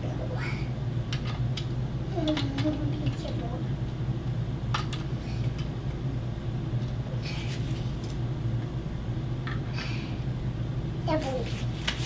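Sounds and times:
steady low hum: 0.0s - 12.0s
soft hissing scrapes: 7.2s - 8.0s.

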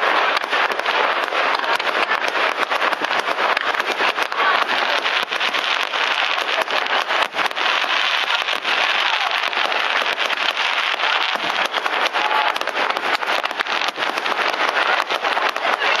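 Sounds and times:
fireworks bursting and crackling: 0.0s - 16.0s.

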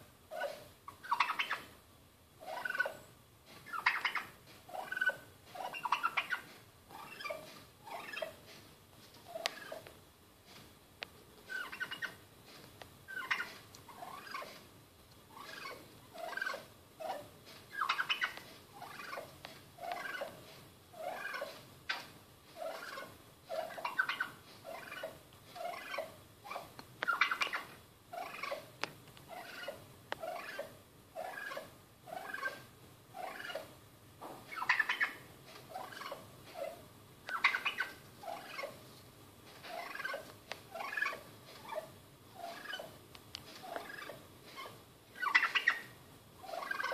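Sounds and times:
turkey calling: 0.3s - 1.7s, 2.4s - 3.1s, 3.7s - 8.4s, 11.4s - 12.2s, 13.1s - 14.6s, 15.3s - 20.4s, 21.0s - 28.7s, 29.3s - 33.7s, 34.5s - 38.8s, 39.6s - 43.0s, 43.6s - 46.9s.

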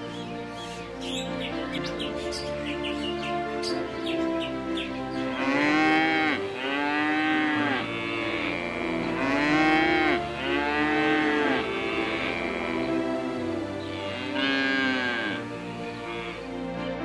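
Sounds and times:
background music: 0.0s - 17.0s
cow mooing: 5.3s - 13.0s, 13.8s - 16.5s.

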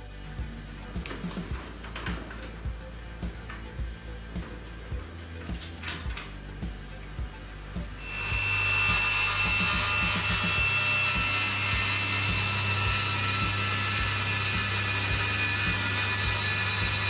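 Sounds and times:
table saw whine: 7.7s - 17.0s
saw rasping through wood: 8.0s - 17.0s.

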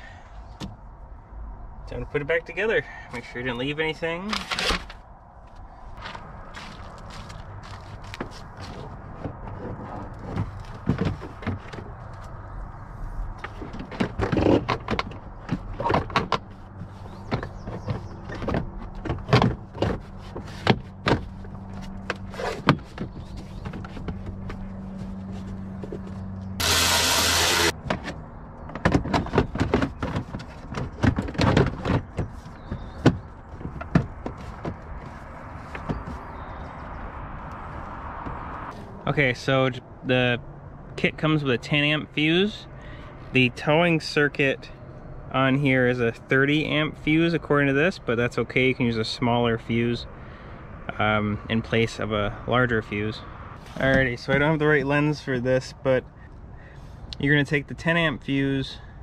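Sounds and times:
plastic panels knocking and clicking: 17.3s - 21.3s, 27.8s - 34.8s
loud rushing noise: 26.6s - 27.7s.

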